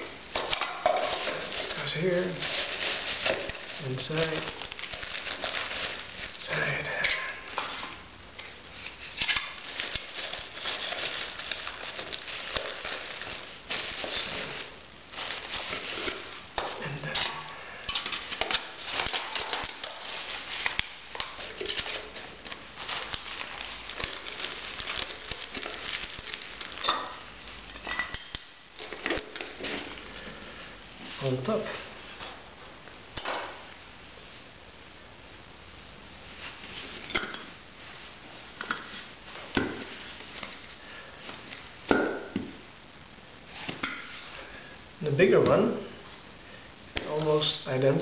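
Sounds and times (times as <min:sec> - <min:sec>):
pouch crinkling and rustling: 0:00.3 - 0:30.3.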